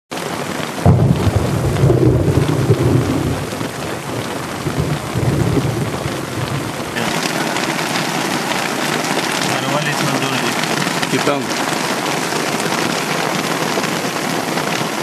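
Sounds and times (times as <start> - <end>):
heavy rain on water: 0.1 - 15.0
thunder rumbling: 0.8 - 11.8.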